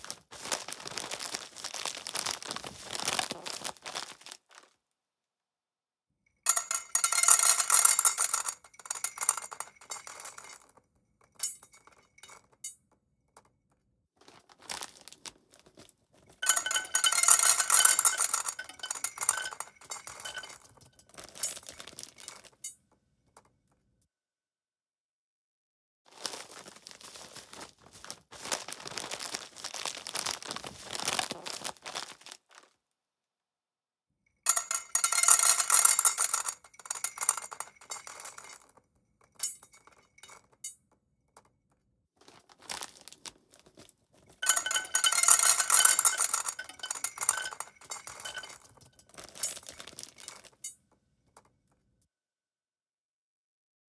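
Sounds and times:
dry cat food clattering into bowl: 6.5 - 10.8, 16.4 - 22.8, 34.5 - 38.8, 44.4 - 50.8.

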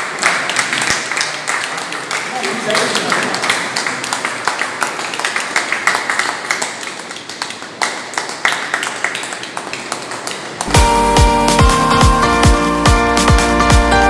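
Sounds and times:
people clapping: 0.0 - 12.3
electronic music with heavy beat: 10.7 - 14.0.

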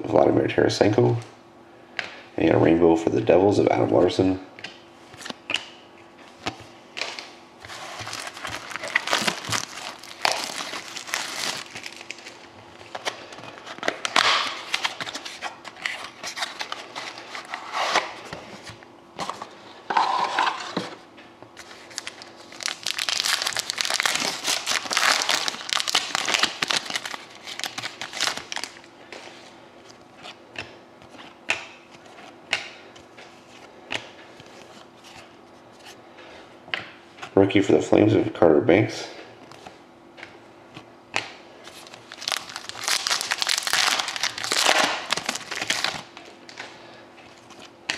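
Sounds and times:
cards clicking and rustling: 6.4 - 18.1, 21.9 - 29.3, 39.5 - 46.7
wrappers crinkling: 7.6 - 17.6, 21.6 - 28.9, 41.6 - 46.6
wrapper tearing: 7.7 - 13.0, 21.9 - 28.8, 41.7 - 46.1.

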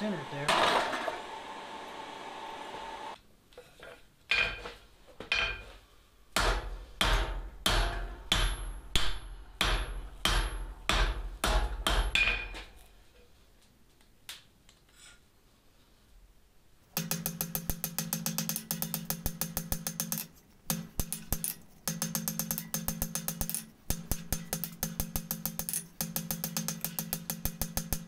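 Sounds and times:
hammer striking hot steel on anvil: 6.4 - 12.6, 17.0 - 28.0.

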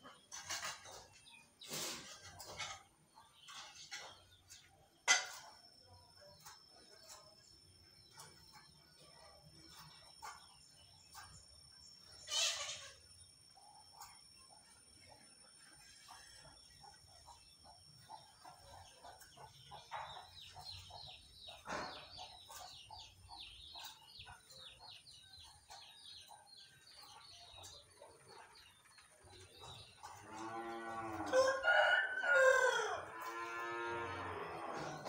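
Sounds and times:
small birds chirping: 0.0 - 31.2
rooster crowing: 30.6 - 35.0.

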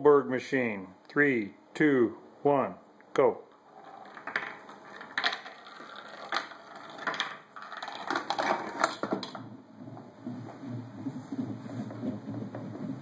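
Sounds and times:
ball clacking down wooden ramps: 3.6 - 10.1.

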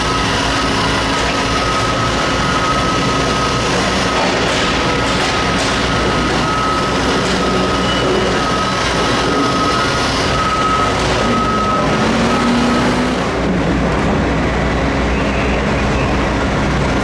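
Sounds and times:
diesel engine running loud: 0.0 - 17.0
high-pitched alarm beep: 0.8 - 13.4.

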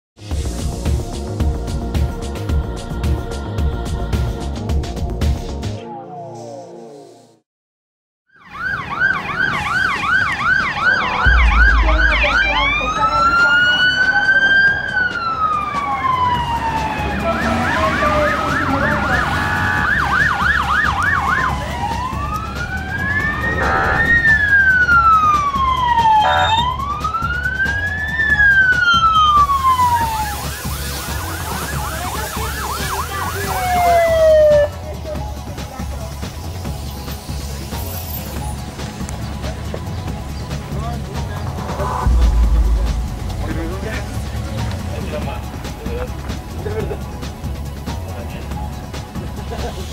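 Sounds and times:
emergency sirens yelping and wailing: 8.3 - 36.8
low steady rumble: 11.3 - 13.0.

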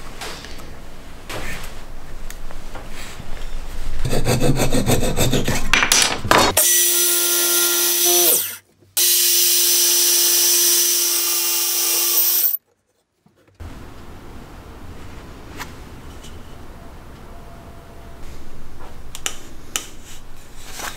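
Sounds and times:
miter saw motor whining: 6.6 - 12.6.

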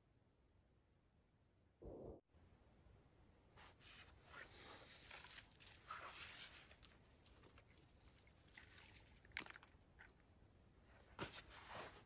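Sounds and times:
dry twigs rustling: 4.6 - 10.2.

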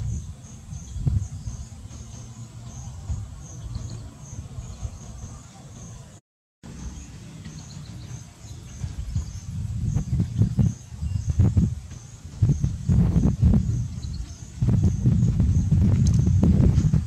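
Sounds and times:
insects chirping: 0.0 - 6.1
wind rumble on microphone: 0.0 - 6.2, 6.8 - 17.0.

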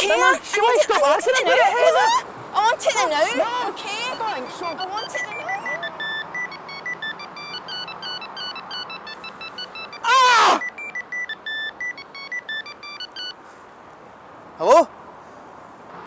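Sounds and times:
electronic beeping melody: 4.0 - 13.4
man crying out in pain: 10.0 - 10.6.

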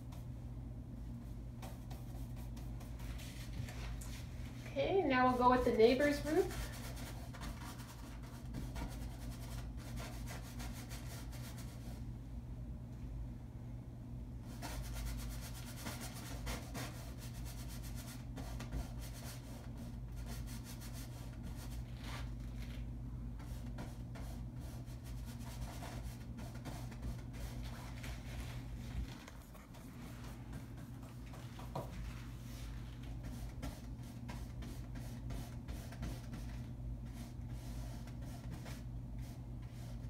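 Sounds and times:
steady low hum: 0.0 - 40.0
paintbrush scrubbing on canvas: 1.6 - 4.2, 6.0 - 11.9, 23.5 - 40.0.

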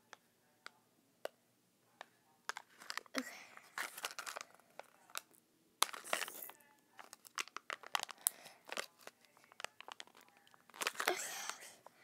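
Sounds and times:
foil wrapper crinkling and tearing: 2.6 - 5.2, 5.8 - 11.7.

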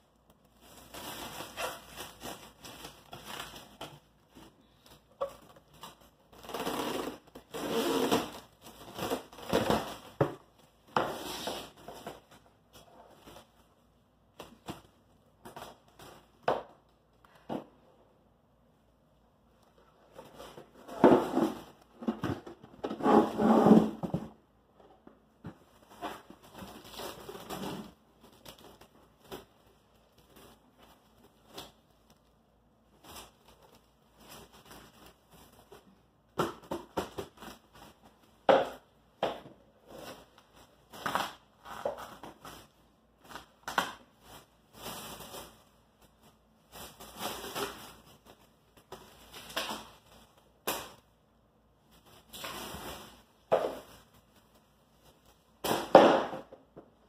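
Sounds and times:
plastic wrap crinkling: 0.0 - 17.4, 25.5 - 39.0, 39.7 - 55.9
plastic wrap snapping: 43.2 - 45.6.

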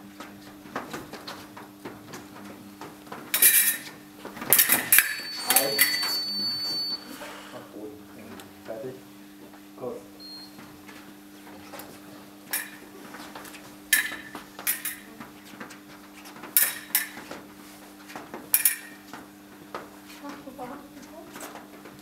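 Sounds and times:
fencing foils clinking: 3.3 - 3.9, 4.5 - 6.9, 13.9 - 15.2, 16.6 - 17.2, 18.5 - 19.0.

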